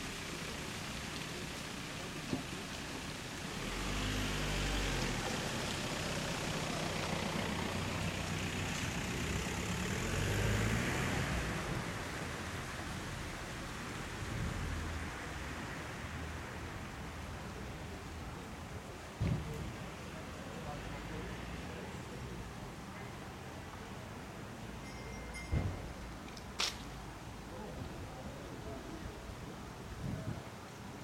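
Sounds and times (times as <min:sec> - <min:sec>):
vehicle engine running: 0:00.0 - 0:10.7
street noise hiss: 0:00.0 - 0:31.0.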